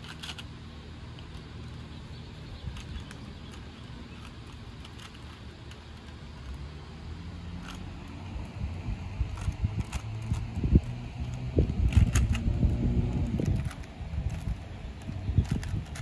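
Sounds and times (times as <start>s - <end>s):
low outdoor rumble: 0.0s - 16.0s
puzzle cube clicking: 9.3s - 16.0s.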